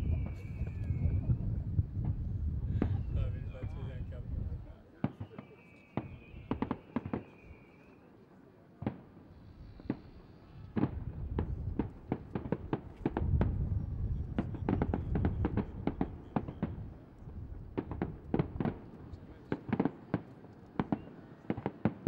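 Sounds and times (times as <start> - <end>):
fireworks bangs and pops: 5.0 - 7.4, 8.8 - 22.0.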